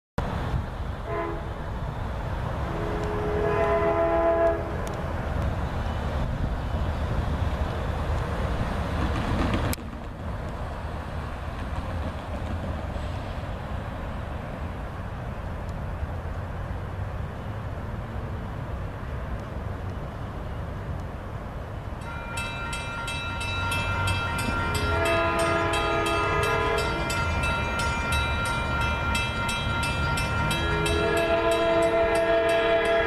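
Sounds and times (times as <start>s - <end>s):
locomotive chime horn: 1.0s - 1.6s, 2.6s - 5.0s, 22.0s - 33.0s.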